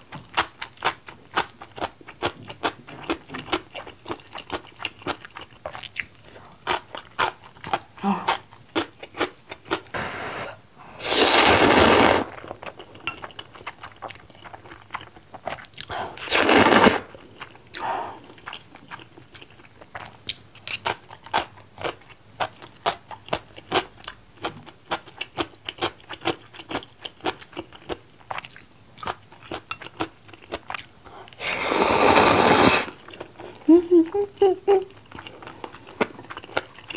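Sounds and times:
wet chewing and crunching: 0:00.0 - 0:09.9, 0:12.3 - 0:15.9, 0:17.1 - 0:31.4, 0:34.9 - 0:36.9
person slurping noodles: 0:10.0 - 0:12.5, 0:16.2 - 0:17.1, 0:31.4 - 0:33.0.

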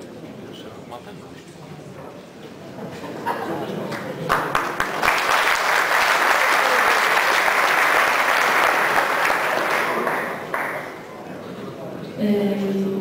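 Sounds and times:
audience applauding: 0:03.9 - 0:11.1.

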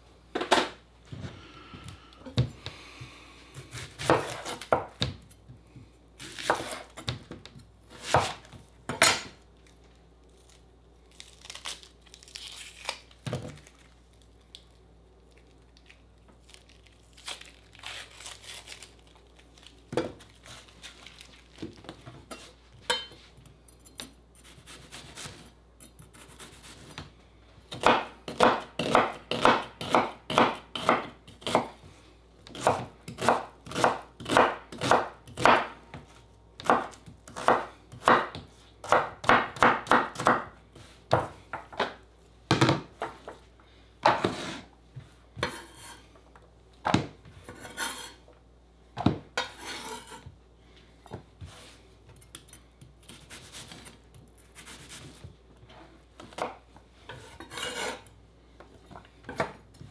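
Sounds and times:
knife chopping vegetables: 0:03.6 - 0:05.4, 0:06.2 - 0:09.3, 0:23.9 - 0:27.1, 0:27.7 - 0:31.8, 0:32.5 - 0:43.2, 0:45.4 - 0:46.0, 0:46.8 - 0:48.2, 0:51.5 - 0:55.3, 0:56.2 - 0:58.1, 0:59.2 - 0:59.9.

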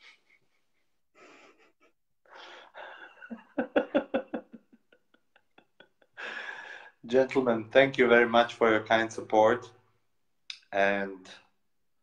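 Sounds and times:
man laughing: 0:02.8 - 0:06.4.

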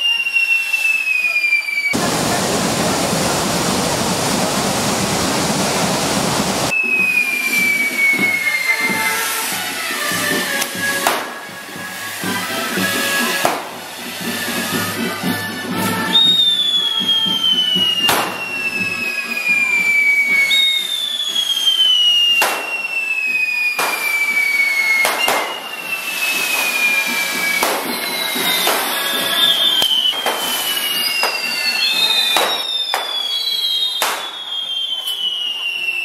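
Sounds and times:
whistles sliding down in pitch: 0:00.0 - 0:02.0, 0:06.7 - 0:36.0
firework fountains hissing: 0:00.0 - 0:36.0
sharp firework bangs: 0:09.9 - 0:11.5, 0:12.2 - 0:14.7, 0:17.4 - 0:18.6, 0:22.4 - 0:23.1, 0:23.8 - 0:35.2.

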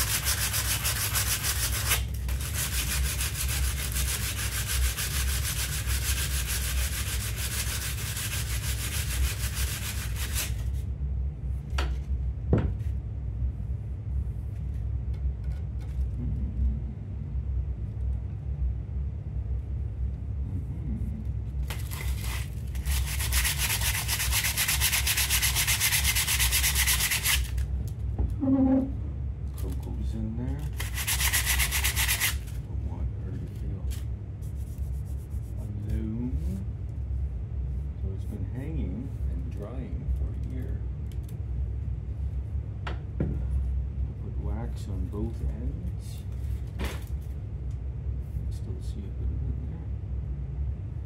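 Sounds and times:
steady low hum: 0:00.0 - 0:51.0.

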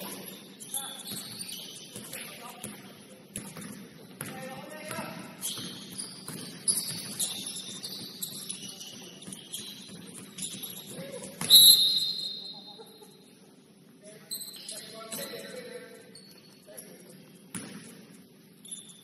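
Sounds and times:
sneakers squeaking on court: 0:00.0 - 0:12.5, 0:17.4 - 0:19.0.

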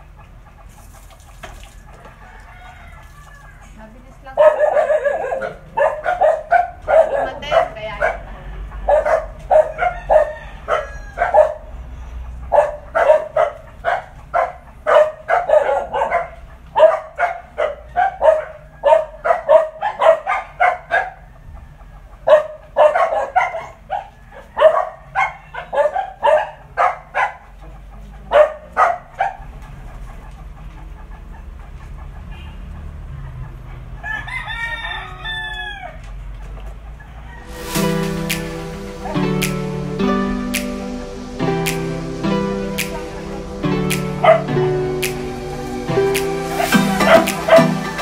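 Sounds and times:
dog barking: 0:04.3 - 0:11.8, 0:12.4 - 0:21.3, 0:22.2 - 0:29.6, 0:43.9 - 0:44.5.

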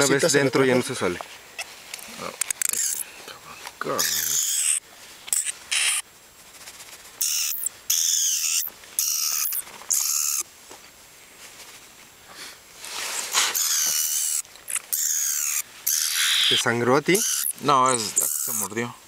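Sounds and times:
bat shrill distress squeals: 0:04.0 - 0:04.8, 0:07.2 - 0:10.4, 0:13.4 - 0:18.7.

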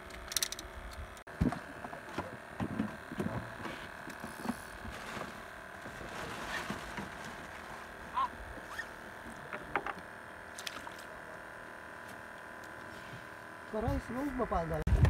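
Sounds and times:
knocks in wooden boat: 0:09.5 - 0:10.0.

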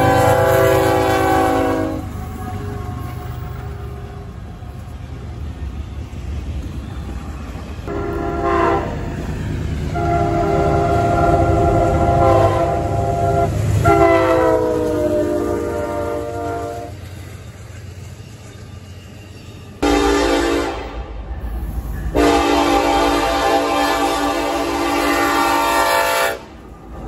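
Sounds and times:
locomotive air horn blasts: 0:00.0 - 0:03.2, 0:07.9 - 0:09.1, 0:09.9 - 0:17.0, 0:19.8 - 0:21.1, 0:22.1 - 0:26.6
passing train rumble: 0:00.0 - 0:27.0.

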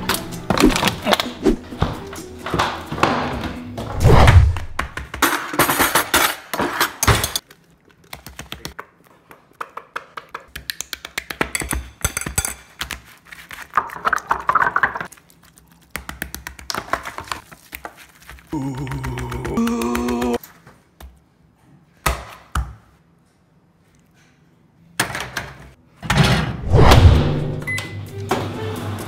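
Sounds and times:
cutlery clattering in a drawer: 0:05.2 - 0:07.4
hands squishing food: 0:15.0 - 0:20.4.

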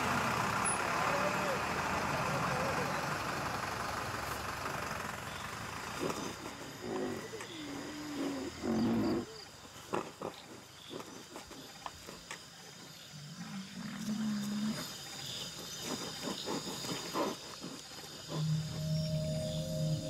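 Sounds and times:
rhinoceros low call: 0:05.9 - 0:11.2, 0:13.3 - 0:20.0
rhinoceros crunching grass: 0:13.8 - 0:20.0
music: 0:18.4 - 0:20.0.

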